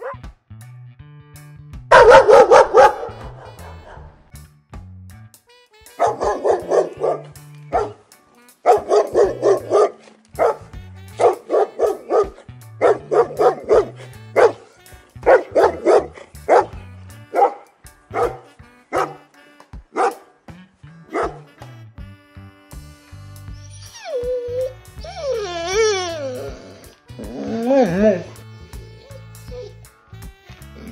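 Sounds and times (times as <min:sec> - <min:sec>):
dog barking: 0:00.0 - 0:00.2, 0:01.9 - 0:04.2, 0:06.0 - 0:08.0, 0:08.6 - 0:19.2, 0:19.9 - 0:20.3, 0:21.1 - 0:21.5
background music with bass: 0:00.0 - 0:30.9.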